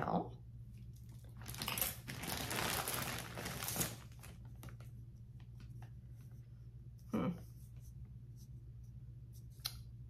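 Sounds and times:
packaging crinkling: 0:01.1 - 0:04.9.

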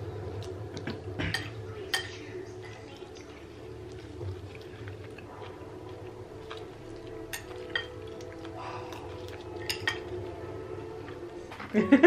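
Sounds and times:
faint background music: 0:00.0 - 0:12.0
spoons clinking on ceramic bowls: 0:01.2 - 0:02.3, 0:07.3 - 0:08.2, 0:09.6 - 0:10.2.

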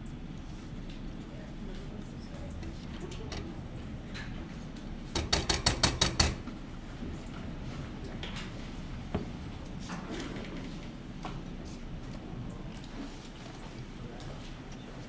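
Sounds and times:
spatula rapping on saucepan: 0:05.2 - 0:06.4.

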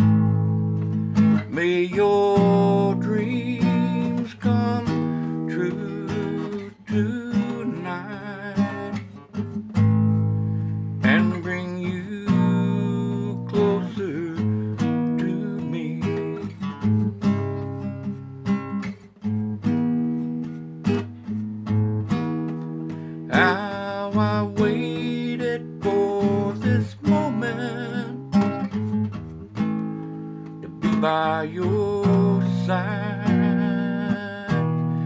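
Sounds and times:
acoustic guitar strumming: 0:00.0 - 0:35.0
person singing: 0:01.5 - 0:09.0, 0:11.0 - 0:16.5, 0:23.3 - 0:28.3, 0:30.7 - 0:35.0.

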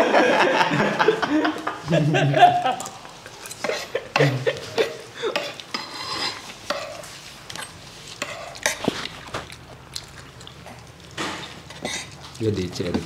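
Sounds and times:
metal spoons scraping and clinking: 0:02.8 - 0:04.0, 0:05.4 - 0:08.8
mouth noises from eating: 0:08.1 - 0:13.0.

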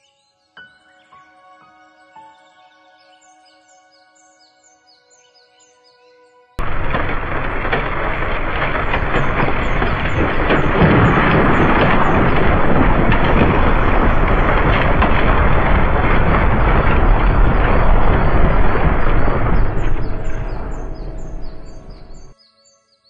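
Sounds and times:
loud dense rushing rumble: 0:06.6 - 0:22.3.

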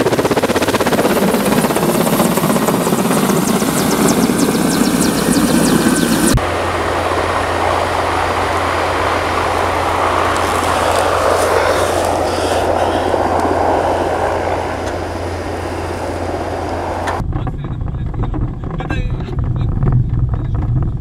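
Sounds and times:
vehicle engine driving over snow: 0:06.6 - 0:17.2.

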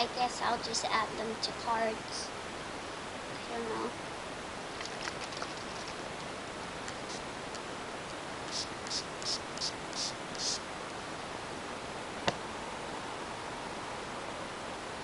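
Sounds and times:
spray bottle spritzing: 0:08.5 - 0:10.6.

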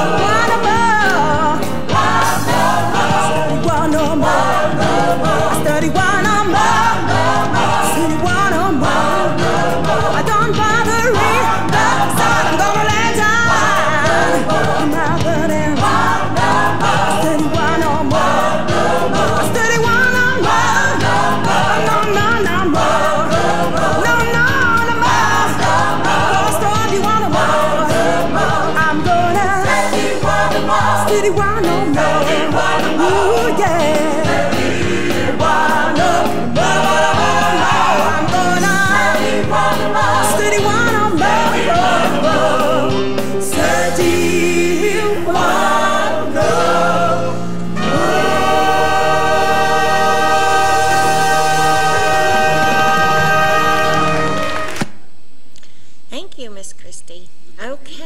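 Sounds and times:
choir singing a hymn: 0:00.0 - 0:54.8
instrumental accompaniment: 0:00.0 - 0:55.0.

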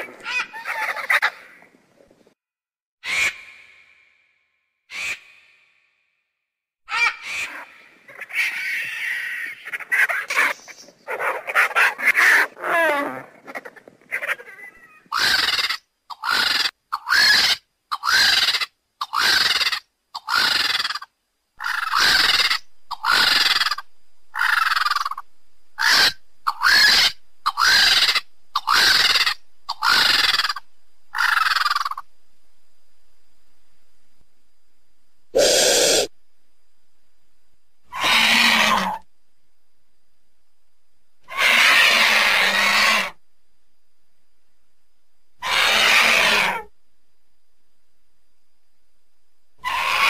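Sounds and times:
vulture calls: 0:03.0 - 0:04.2, 0:04.9 - 0:05.8, 0:06.9 - 0:32.1, 0:35.4 - 0:36.1, 0:37.9 - 0:39.1, 0:41.2 - 0:43.2, 0:45.4 - 0:46.7, 0:49.6 - 0:50.0.

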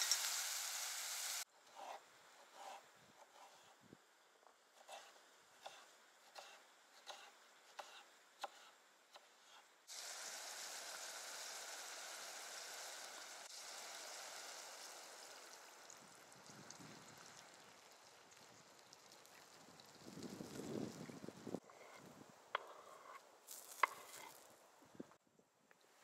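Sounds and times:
water pouring into a pot: 0:00.0 - 0:01.4, 0:09.9 - 0:21.0
sizzling hiss from a hot pot: 0:00.0 - 0:01.5, 0:09.9 - 0:20.8
knife chopping on wooden board: 0:05.6 - 0:08.7.

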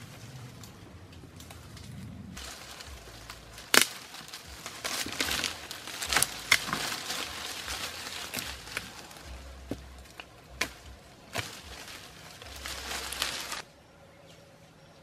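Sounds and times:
dry leaves rustling: 0:00.0 - 0:13.7
wooden pole scraping soil: 0:02.4 - 0:13.6.

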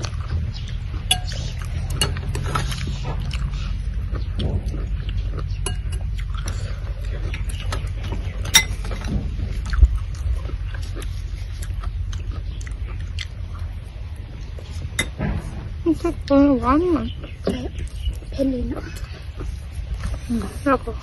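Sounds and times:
chewing and mouth sounds: 0:00.0 - 0:15.4, 0:16.0 - 0:21.0
low rumble: 0:00.0 - 0:21.0
spoons clinking on bowls: 0:01.1 - 0:02.4, 0:05.6 - 0:06.1.

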